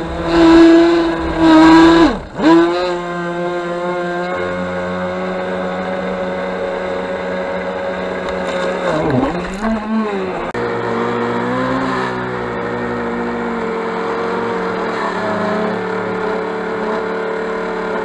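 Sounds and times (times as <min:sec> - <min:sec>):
electric boat motor whining: 0:00.0 - 0:18.0.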